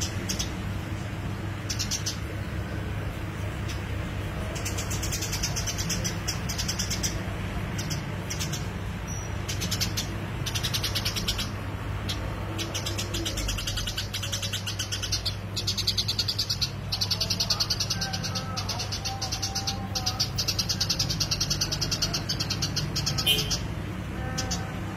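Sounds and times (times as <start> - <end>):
sparrow chirping: 0.0 - 24.8.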